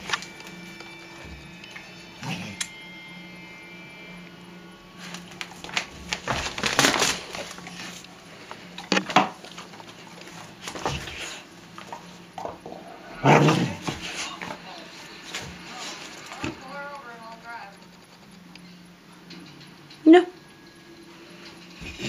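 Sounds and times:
dog scuffling with a toy: 0:10.2 - 0:12.1.

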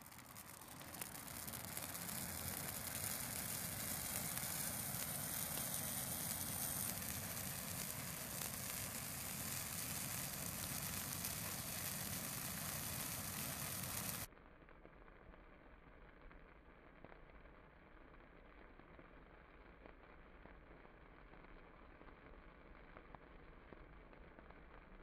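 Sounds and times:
rush of flame: 0:00.0 - 0:14.3
pine needles crackling in fire: 0:00.0 - 0:25.0.

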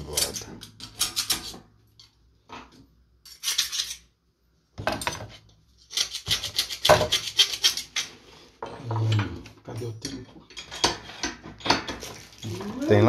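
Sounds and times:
metal tools clinking and rattling: 0:00.0 - 0:02.1, 0:07.4 - 0:13.0.

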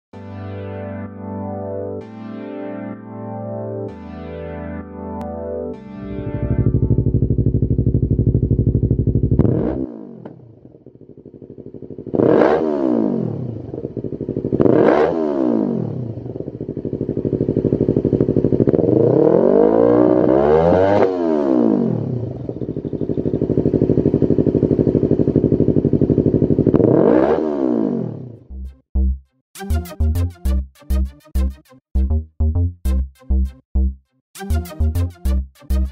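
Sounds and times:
motorcycle engine idling and revving: 0:06.7 - 0:28.6.

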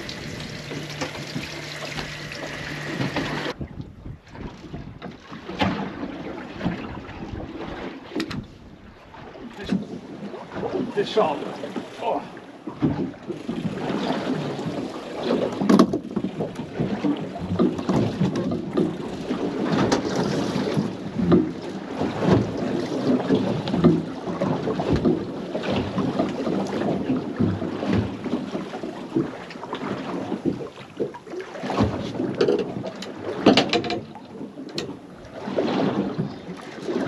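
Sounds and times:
water slapping boat hull: 0:00.0 - 0:37.0
wind buffeting microphone: 0:02.6 - 0:11.7.

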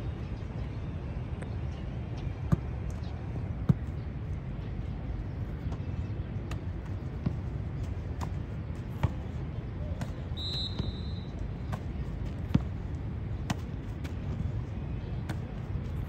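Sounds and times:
low outdoor rumble: 0:00.0 - 0:16.0
football kick thuds: 0:08.1 - 0:11.0, 0:11.6 - 0:12.8, 0:13.4 - 0:14.5
high whistle tone: 0:10.4 - 0:11.3.

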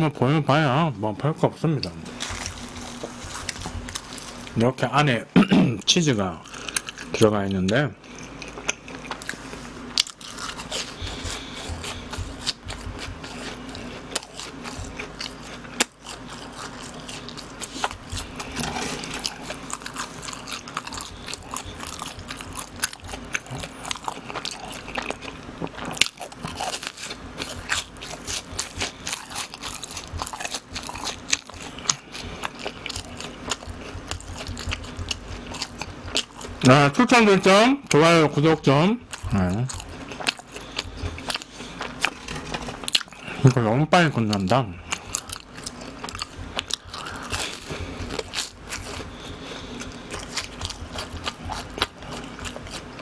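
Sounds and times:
person chewing cheese balls: 0:01.6 - 0:05.2, 0:05.8 - 0:53.0.

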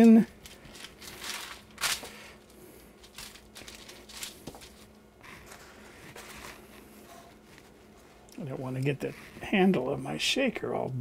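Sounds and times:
paper crinkling and rustling: 0:00.0 - 0:07.8.

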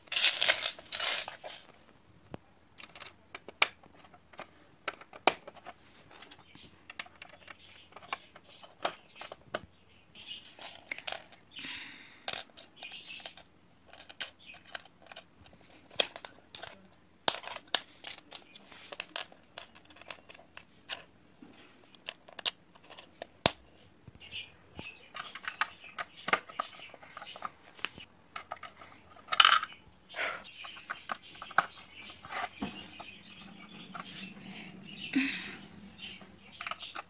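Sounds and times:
rustling: 0:00.0 - 0:02.0, 0:25.2 - 0:37.0
plastic bricks clicking together: 0:10.5 - 0:11.4, 0:12.2 - 0:21.1, 0:22.0 - 0:23.6, 0:28.4 - 0:29.8, 0:36.5 - 0:37.0.

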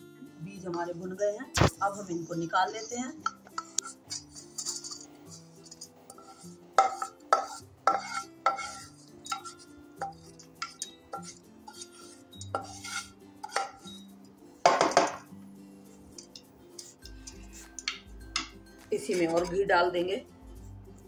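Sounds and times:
spatula scraping frying pan: 0:02.0 - 0:14.1, 0:15.9 - 0:19.6
pan clinking on metal bowl: 0:03.2 - 0:14.0, 0:14.6 - 0:15.3.

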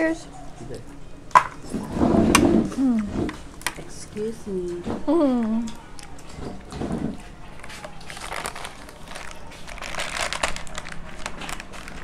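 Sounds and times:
crab shells cracking: 0:07.6 - 0:12.0.

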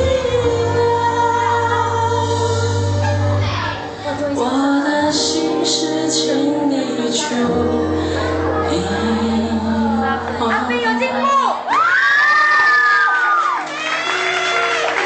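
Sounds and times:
person singing into microphone: 0:00.0 - 0:11.6
pop ballad backing track over pa: 0:00.0 - 0:11.7.

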